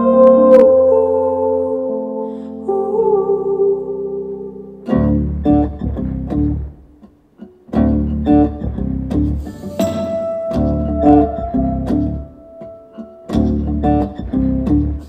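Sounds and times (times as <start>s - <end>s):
held chord over pa system: 4.6s - 15.0s
strummed guitar chords over bass: 4.8s - 15.0s.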